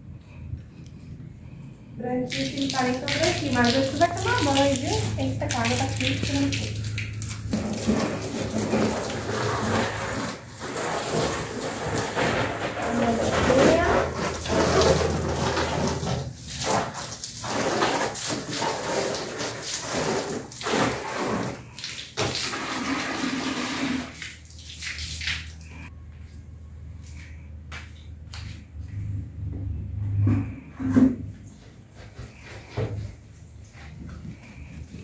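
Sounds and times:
water splashing on plastic and tiles: 0:02.2 - 0:25.9.

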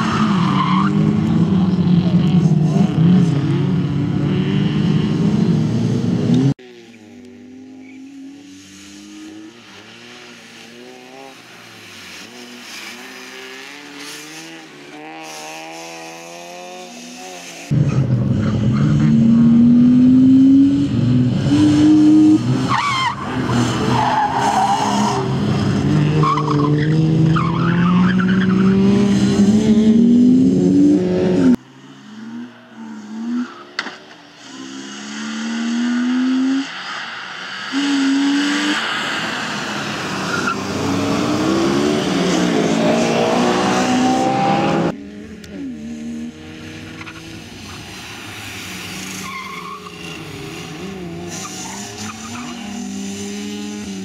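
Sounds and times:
car engine revving hard: 0:23.4 - 0:31.6, 0:37.7 - 0:45.0.

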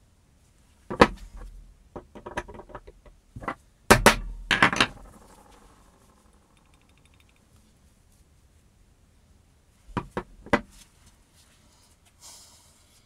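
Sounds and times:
drill parts knocking on workbench: 0:00.9 - 0:01.2, 0:02.0 - 0:05.2.

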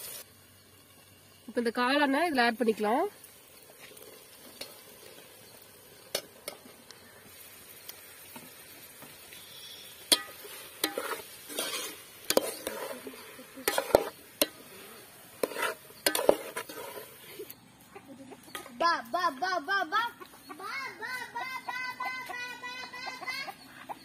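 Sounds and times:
faint sizzle: 0:00.0 - 0:21.2
spoon scraping pot: 0:09.3 - 0:17.5
metal spoon clinking on pot: 0:10.1 - 0:13.0, 0:15.4 - 0:16.6.

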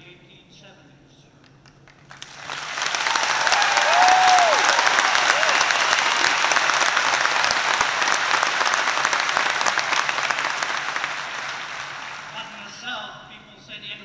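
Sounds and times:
large crowd applauding: 0:01.8 - 0:12.5
crowd cheering: 0:02.1 - 0:12.5.

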